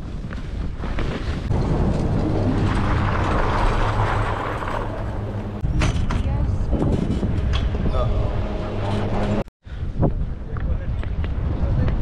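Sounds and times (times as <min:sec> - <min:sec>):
wind on microphone: 0:05.0 - 0:12.0.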